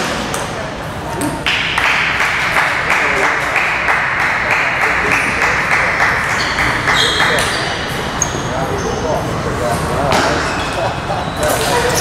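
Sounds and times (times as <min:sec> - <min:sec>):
crowd clapping: 0:01.4 - 0:07.5.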